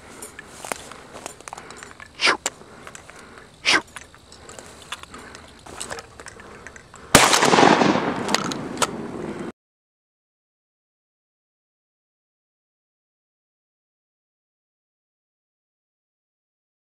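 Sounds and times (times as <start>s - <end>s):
shotgun blast: 7.1s - 9.2s.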